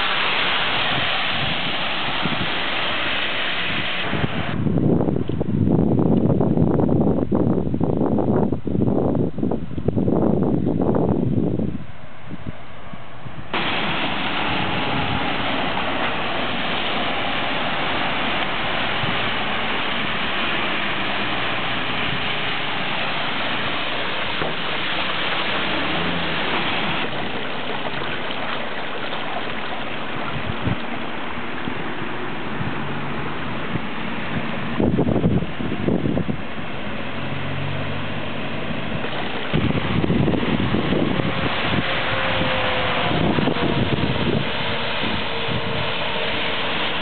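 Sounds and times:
floodwater rushing: 0.0 - 6.8, 11.5 - 47.0.

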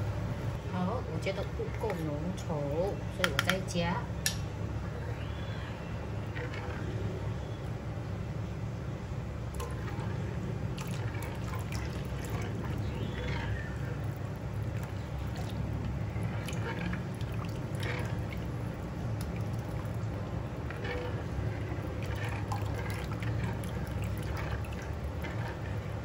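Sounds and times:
steady low hum: 0.0 - 26.0
liquid sloshing and dripping: 6.2 - 7.7, 9.4 - 26.0
small splashes: 9.5 - 26.0.

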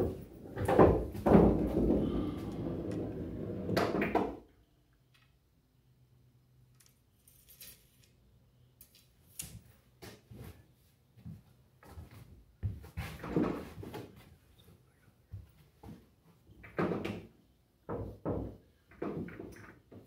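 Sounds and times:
knocks and thumps around pool table: 0.0 - 4.4, 13.0 - 14.1, 16.6 - 17.3, 17.9 - 20.0.

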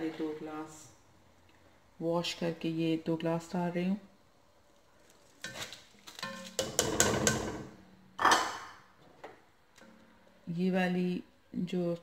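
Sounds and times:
kitchenware clattering: 5.4 - 8.8.

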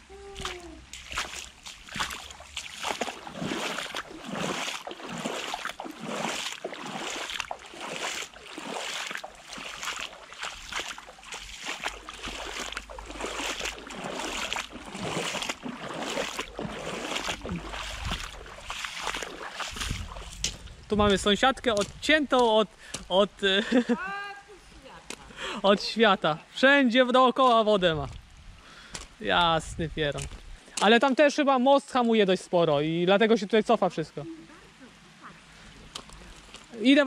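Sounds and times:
boots splashing through water: 0.3 - 23.1, 35.4 - 37.0.

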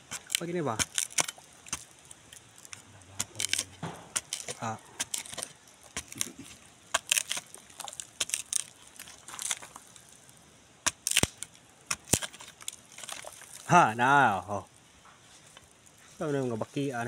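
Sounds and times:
knife scraping rotten wood: 0.0 - 10.2, 10.9 - 13.7.

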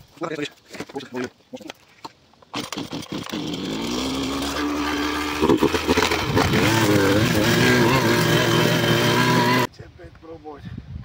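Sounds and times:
string trimmer engine revving: 2.5 - 9.7.

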